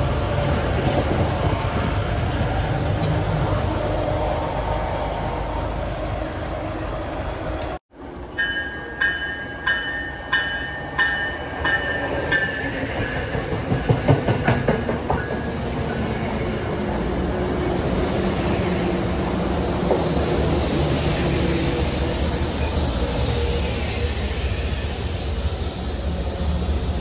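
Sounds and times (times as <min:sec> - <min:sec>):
train rolling rumble: 0:00.0 - 0:27.0
train bell ringing: 0:08.2 - 0:13.3
train wheels clicking over rail joints: 0:11.6 - 0:15.6.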